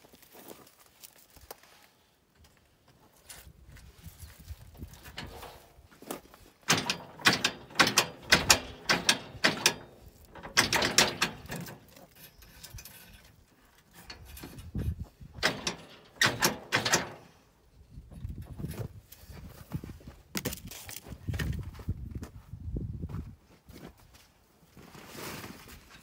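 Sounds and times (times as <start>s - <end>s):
metal parts scraping and creaking: 4.0s - 19.5s.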